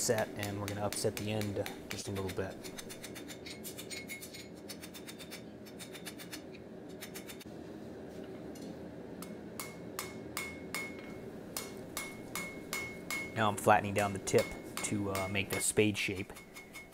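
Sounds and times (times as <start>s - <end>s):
hammer striking steel on anvil: 9.2s - 16.9s.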